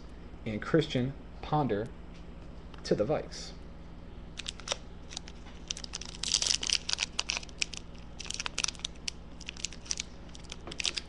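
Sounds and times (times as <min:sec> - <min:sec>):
foil wrapper crinkling: 0:04.4 - 0:11.0.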